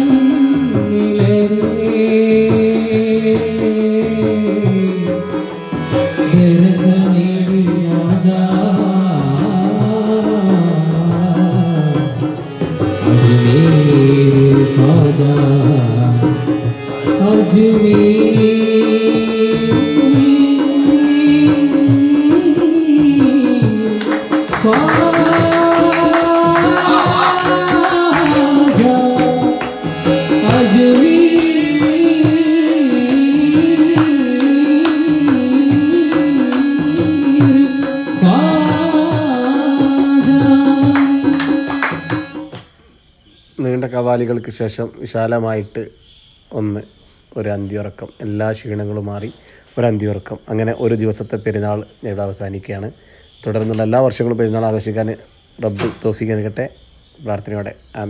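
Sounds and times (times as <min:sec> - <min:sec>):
person singing: 0:00.0 - 0:42.6
tabla drumming: 0:00.0 - 0:42.8.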